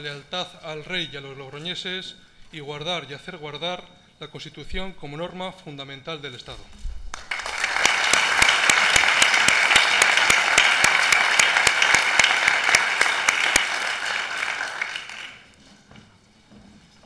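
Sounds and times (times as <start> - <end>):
person clapping close up: 7.1 - 15.5
crowd applause in a hall: 7.1 - 15.6.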